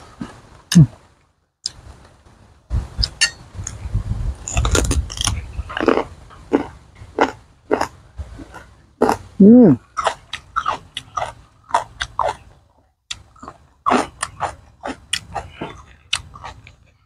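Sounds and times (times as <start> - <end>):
crunchy chewing: 3.0 - 17.0
spoon clinking on steel plate: 3.1 - 3.4.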